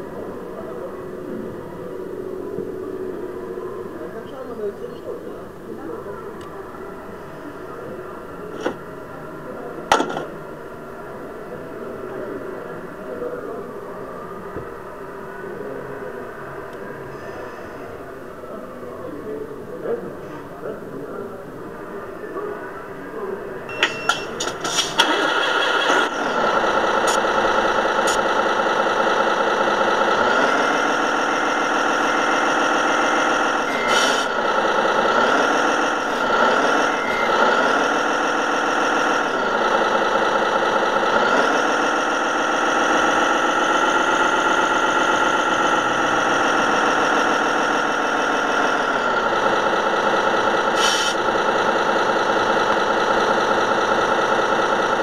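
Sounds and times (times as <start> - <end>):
toy truck engine revving: 23.8 - 55.0.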